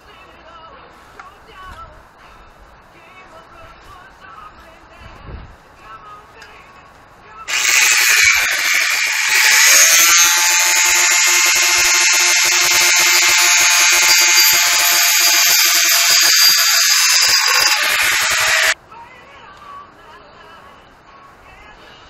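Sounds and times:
angle grinder cutting metal: 0:07.5 - 0:18.8.

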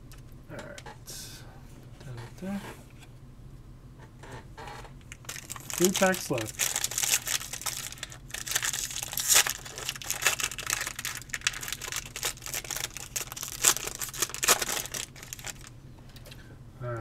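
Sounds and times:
foil wrapper crinkling: 0:05.1 - 0:15.7
foil wrapper tearing: 0:05.1 - 0:15.7.

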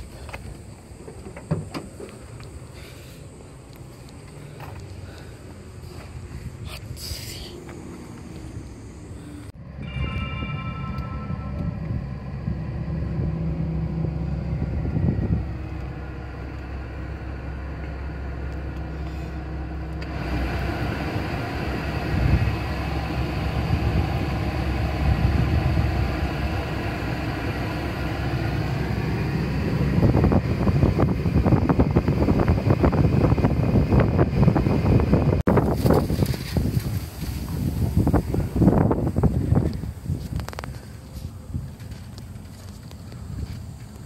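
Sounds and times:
car engine idling: 0:10.9 - 0:35.4
air blower rushing from vents: 0:11.5 - 0:40.7.

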